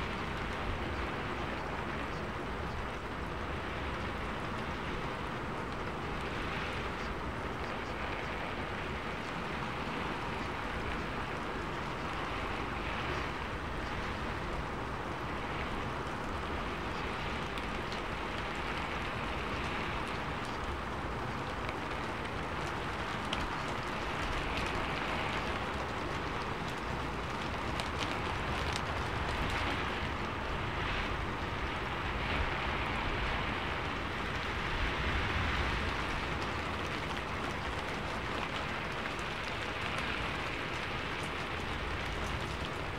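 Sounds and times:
rushing water noise: 0:00.0 - 0:42.9
light ticks: 0:15.6 - 0:30.3.

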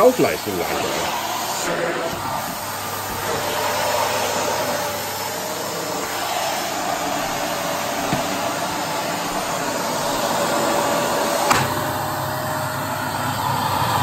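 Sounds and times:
vacuum cleaner motor running: 0:00.0 - 0:14.0.

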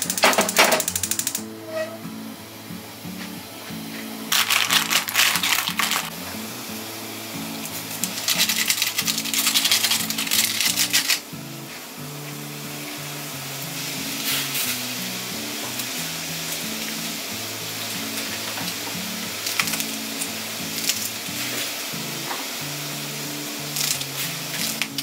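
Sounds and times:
liquid poured into boiling water: 0:04.3 - 0:06.2, 0:07.6 - 0:11.2
soup bubbling: 0:04.3 - 0:06.2.

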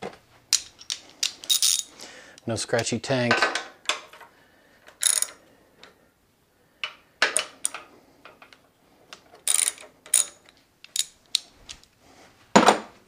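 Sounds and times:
metal clinks: 0:00.5 - 0:02.0
socket ratchet clicking: 0:05.0 - 0:05.4, 0:09.5 - 0:11.5.

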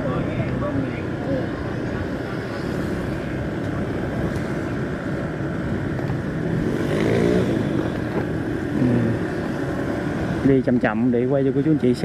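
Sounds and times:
vehicle engine and road noise: 0:00.0 - 0:12.0
engine revving: 0:06.5 - 0:08.0, 0:08.6 - 0:09.5.

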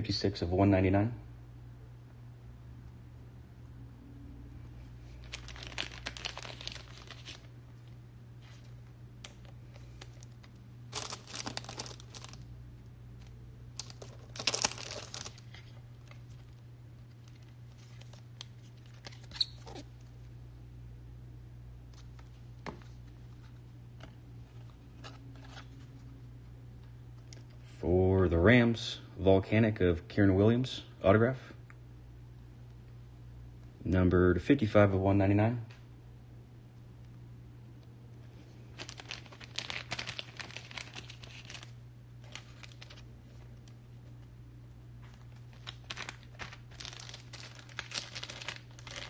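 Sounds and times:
plastic crinkling: 0:05.0 - 0:12.5, 0:13.2 - 0:20.1, 0:38.4 - 0:44.3, 0:45.0 - 0:49.0.

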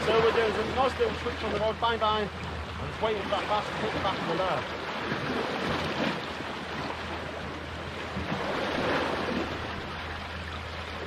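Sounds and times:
sea waves washing against rocks: 0:00.0 - 0:11.0.

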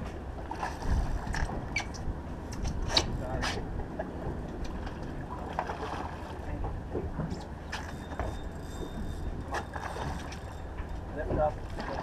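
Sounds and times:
boat engine low rumble: 0:00.0 - 0:12.0.

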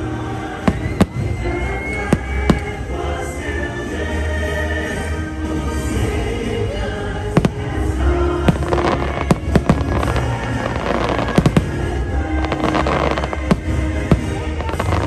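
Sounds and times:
show music: 0:00.0 - 0:15.0
firework bangs: 0:07.2 - 0:15.0.

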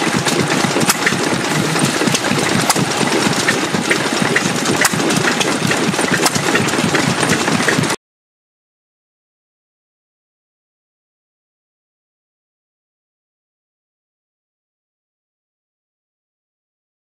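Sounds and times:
sharp engine clicks: 0:00.0 - 0:08.0
stationary engine clattering: 0:00.0 - 0:08.0.

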